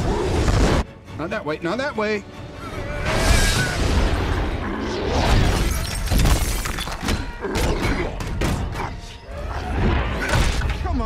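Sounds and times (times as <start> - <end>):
music: 0.0 - 11.0
glass shattering: 5.4 - 7.2.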